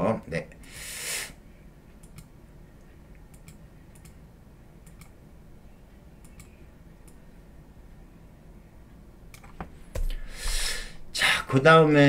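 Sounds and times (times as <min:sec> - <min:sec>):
low room noise: 0:00.0 - 0:12.0
computer mouse clicks: 0:02.0 - 0:02.3, 0:03.1 - 0:04.2, 0:04.8 - 0:05.2, 0:06.2 - 0:07.2.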